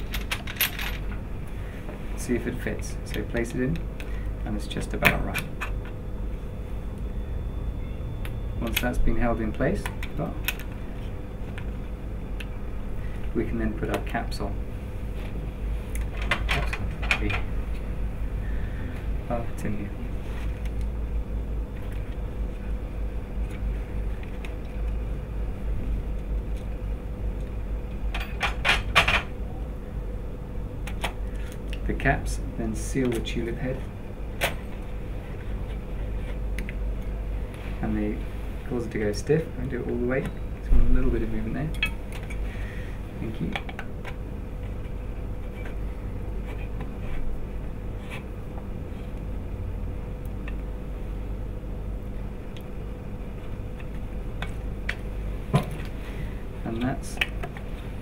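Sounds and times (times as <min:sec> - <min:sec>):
metal instruments clinking: 0:00.0 - 0:01.1
low room hum: 0:00.0 - 0:58.0.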